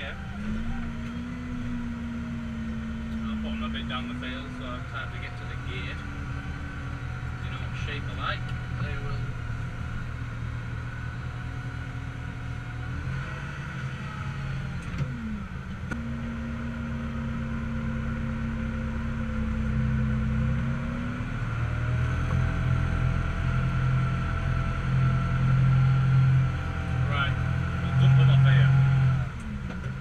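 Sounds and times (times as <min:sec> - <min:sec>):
steady whining tone: 0:00.0 - 0:30.0
tractor engine running: 0:00.0 - 0:30.0.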